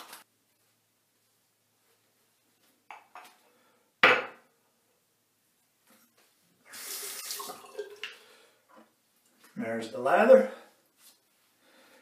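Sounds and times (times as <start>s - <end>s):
water tap running: 6.7s - 8.2s.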